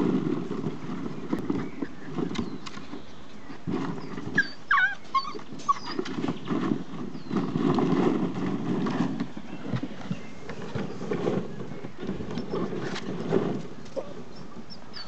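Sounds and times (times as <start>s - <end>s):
puppies whining: 3.9s - 6.4s, 14.0s - 15.0s.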